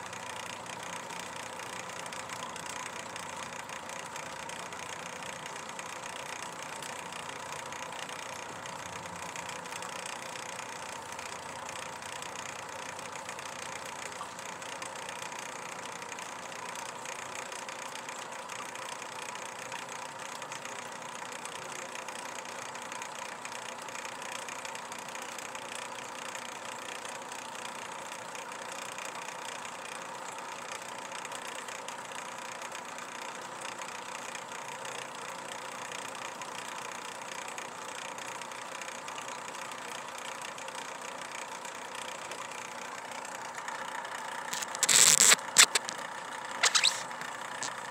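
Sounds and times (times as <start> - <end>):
mechanical hum with whine: 37.1 - 47.9.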